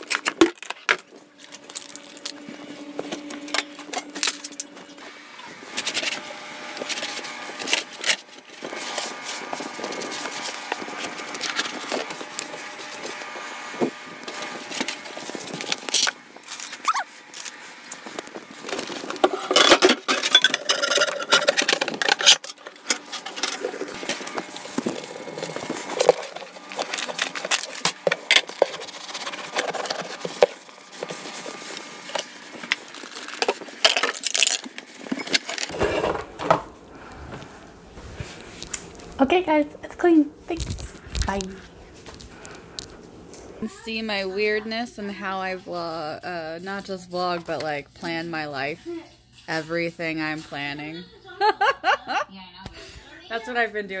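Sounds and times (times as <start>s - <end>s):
objects clattering on a counter: 19.2s - 23.8s
rattling: 19.3s - 24.0s.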